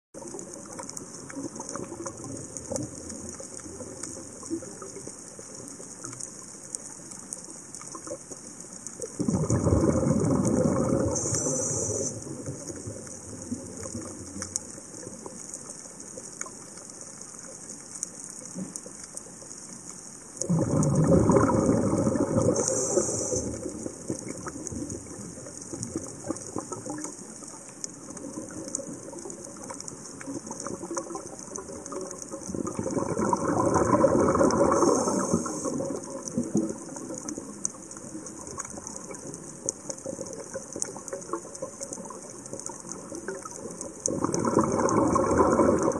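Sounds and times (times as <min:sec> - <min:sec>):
faint clicks: 0:00.2 - 0:45.9
underwater hiss: 0:09.0 - 0:16.2, 0:20.1 - 0:39.4, 0:40.0 - 0:45.9
regulator exhaling bubbles: 0:09.2 - 0:13.9, 0:20.4 - 0:25.2, 0:32.5 - 0:37.1, 0:44.1 - 0:45.9.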